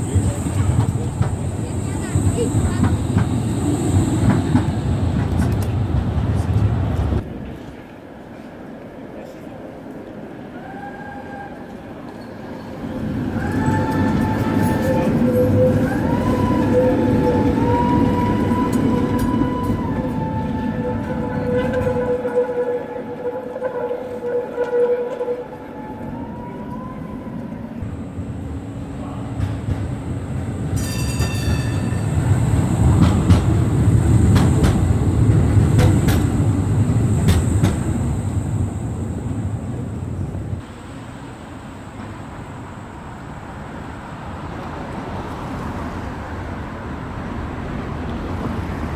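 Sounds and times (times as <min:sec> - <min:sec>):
tram rumbling past: 0:00.0 - 0:48.9
tram whine: 0:00.0 - 0:48.9
high ringing: 0:27.8 - 0:40.2.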